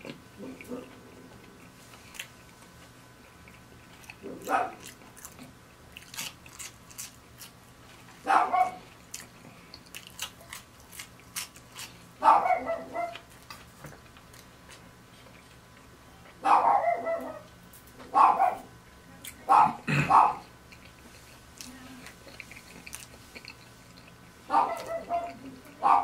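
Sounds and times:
dog barking: 4.2s - 4.9s, 8.2s - 8.8s, 12.2s - 13.2s, 16.4s - 17.5s, 18.1s - 18.7s, 19.5s - 20.5s, 24.5s - 26.0s
chewing clicks: 20.4s - 25.5s.

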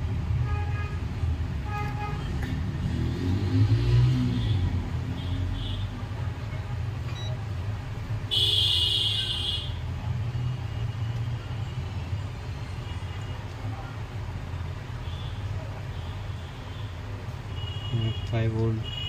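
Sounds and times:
multimeter beep: 7.1s - 7.4s.

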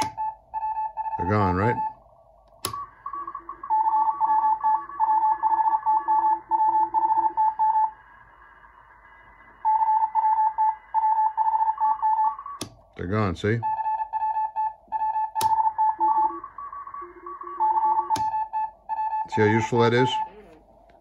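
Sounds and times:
toggle switch click: 2.6s - 2.8s, 12.6s - 12.8s
morse code tones: 2.7s - 8.0s, 9.6s - 20.6s.

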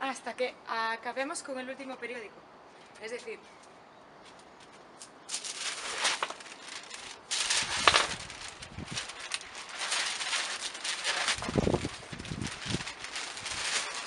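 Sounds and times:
newspaper rustling and crinkling: 4.3s - 14.0s.

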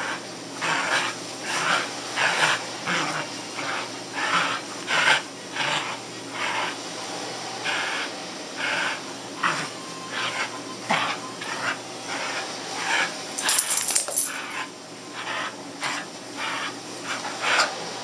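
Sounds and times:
dogs playing: 0.0s - 18.0s
collar tags jingling: 13.4s - 14.6s.

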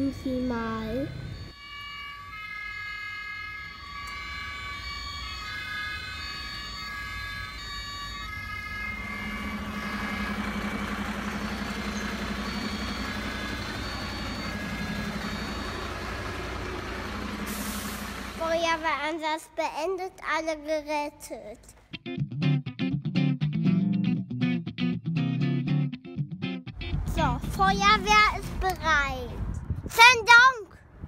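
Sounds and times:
electronic siren stepping tones: 0.0s - 18.8s
low engine hum: 8.3s - 18.8s, 26.7s - 29.8s.

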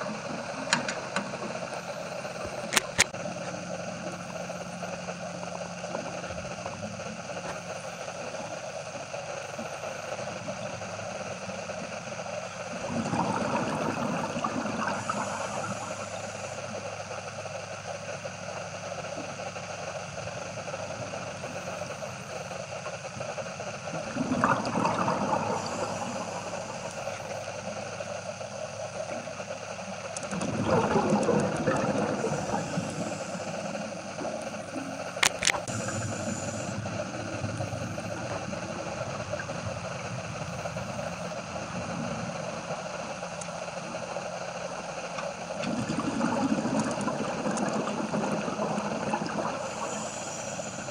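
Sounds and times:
low underwater hum: 0.0s - 50.9s
diver exhaling bubbles: 12.7s - 16.2s, 24.0s - 27.0s, 30.3s - 40.0s, 45.5s - 50.9s.

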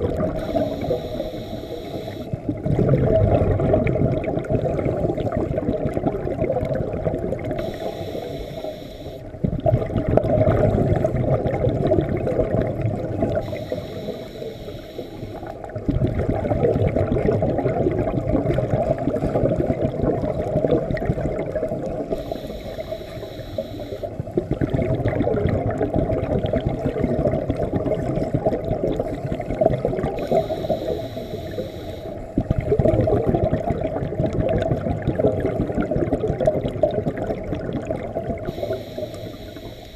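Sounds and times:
exhaled air bubbling: 0.0s - 39.9s
regulator breath hiss: 0.4s - 2.3s, 7.6s - 9.2s, 13.4s - 15.5s, 30.2s - 32.1s, 38.5s - 39.9s.

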